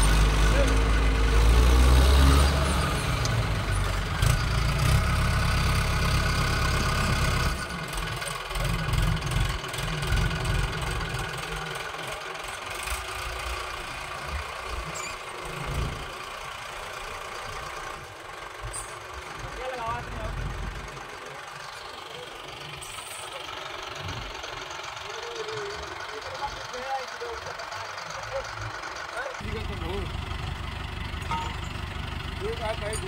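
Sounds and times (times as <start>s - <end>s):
tractor diesel engine running: 0.0s - 33.0s.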